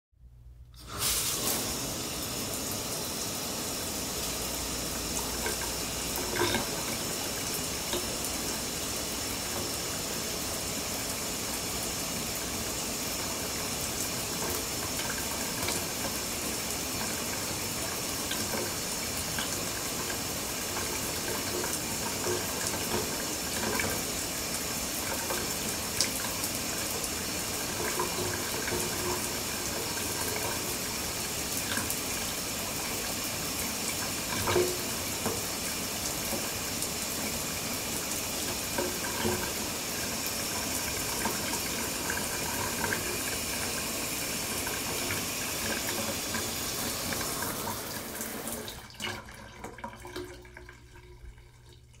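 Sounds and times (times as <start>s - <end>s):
shower spray hissing: 0.8s - 22.2s.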